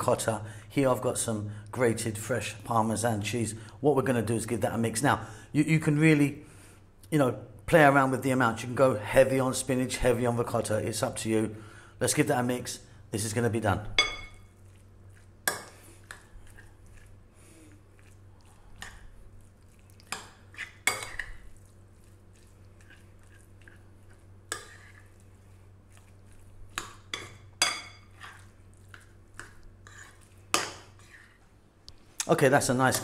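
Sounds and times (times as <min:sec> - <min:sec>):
metal spoon scraping bowl: 0:29.4 - 0:31.4.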